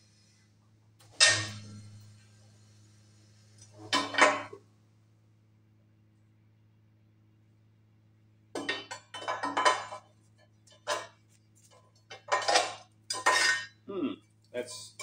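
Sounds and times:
hydraulic pump humming: 0:00.0 - 0:06.2
steel pieces clanking: 0:01.1 - 0:01.8, 0:12.1 - 0:13.8.

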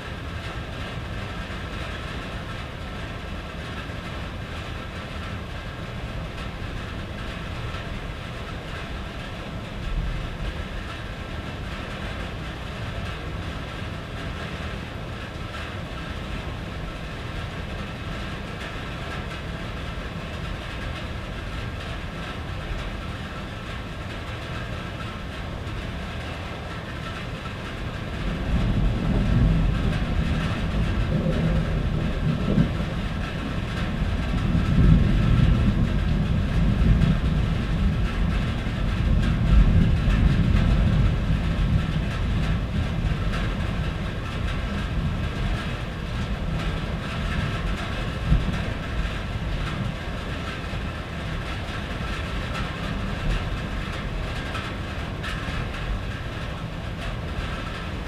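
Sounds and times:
rain drumming on a tin roof: 0:00.0 - 0:58.0
deep rumble of thunder: 0:26.8 - 0:58.0.

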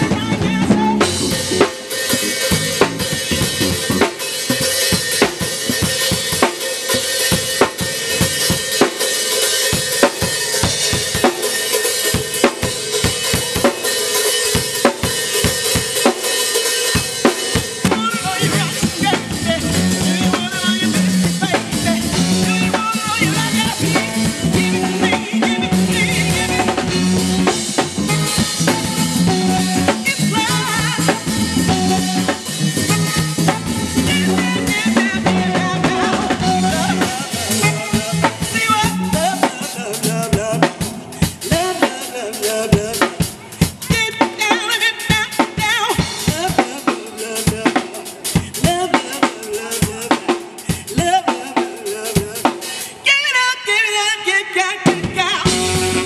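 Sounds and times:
woman singing: 0:00.0 - 0:01.6, 0:15.7 - 0:27.6, 0:28.4 - 0:56.0
bass line: 0:00.0 - 0:08.8, 0:17.6 - 0:41.6, 0:55.1 - 0:56.0
keyboard: 0:00.0 - 0:53.1, 0:54.8 - 0:56.0
drum kit with cymbals: 0:00.0 - 0:53.8, 0:54.5 - 0:56.0.

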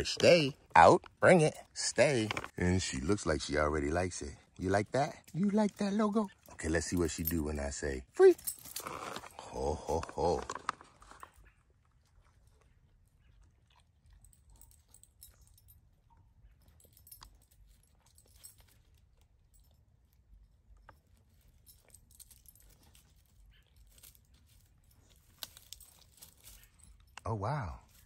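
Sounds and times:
dog paws crackling on dry leaves: 0:21.3 - 0:28.0.

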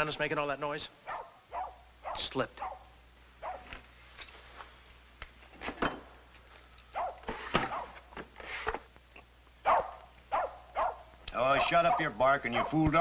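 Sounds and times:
dog barking: 0:01.0 - 0:03.8, 0:06.9 - 0:08.0, 0:09.6 - 0:12.8.

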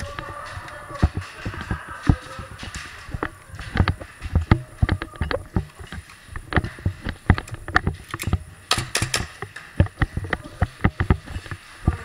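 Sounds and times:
footsteps on concrete: 0:00.0 - 0:08.5.

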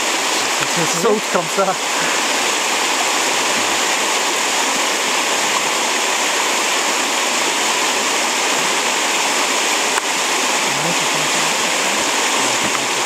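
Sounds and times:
river water rushing through rapids: 0:00.0 - 0:13.0.

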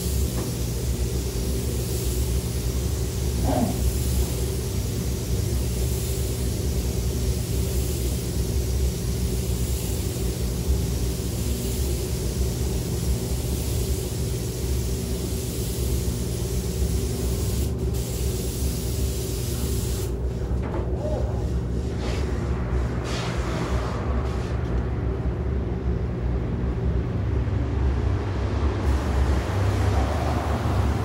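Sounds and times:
spray gun hissing: 0:00.0 - 0:20.2, 0:28.8 - 0:31.0
ventilation hum: 0:00.0 - 0:31.0.

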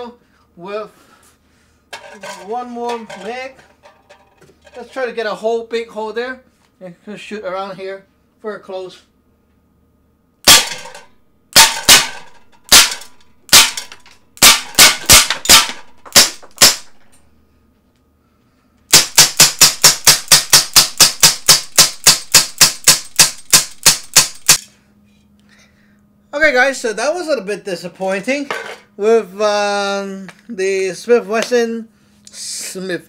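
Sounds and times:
pellet revolver cracks: 0:10.5 - 0:11.0, 0:11.6 - 0:17.0.

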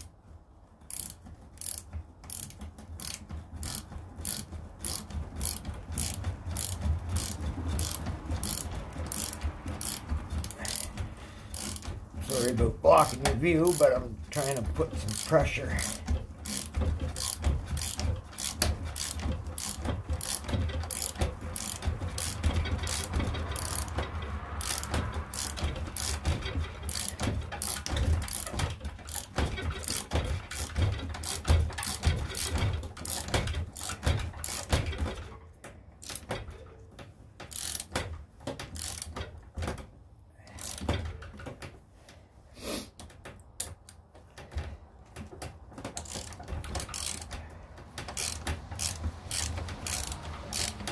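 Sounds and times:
thread tap clicking and grinding: 0:00.8 - 0:36.4, 0:43.0 - 0:50.9.

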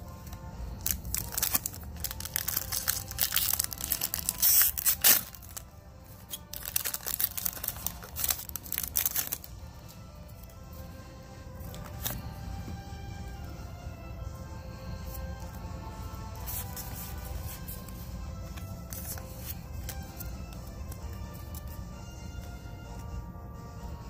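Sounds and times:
background music: 0:00.0 - 0:24.0
cards handled: 0:00.1 - 0:10.7, 0:11.6 - 0:12.4, 0:15.0 - 0:23.1
foil wrapper crinkling: 0:00.8 - 0:05.6, 0:06.2 - 0:09.5
foil wrapper tearing: 0:00.8 - 0:05.6, 0:06.2 - 0:09.5.

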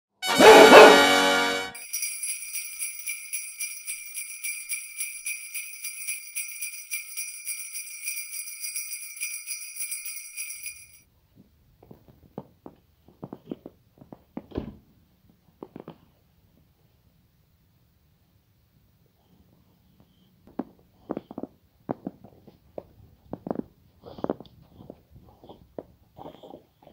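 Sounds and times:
jingle bells shaking: 0:01.7 - 0:11.0.

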